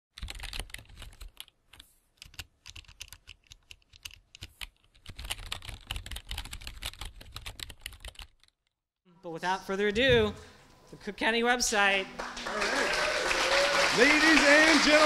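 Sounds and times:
computer keyboard typing: 0:00.2 - 0:08.6.

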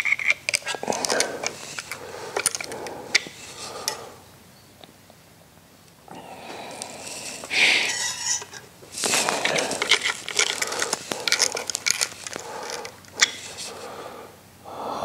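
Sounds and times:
hand tools clinking on metal: 0:00.0 - 0:04.1, 0:07.6 - 0:13.7.

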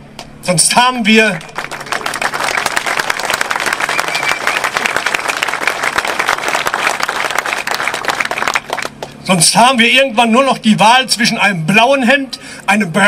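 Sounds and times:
crowd applauding: 0:01.4 - 0:09.2.

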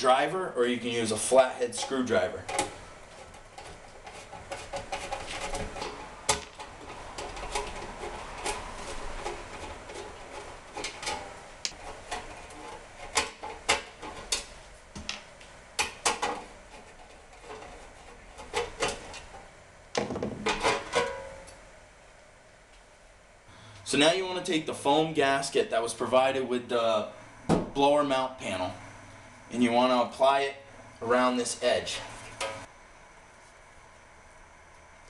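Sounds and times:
parts being handled: 0:01.8 - 0:21.6, 0:32.0 - 0:32.7.

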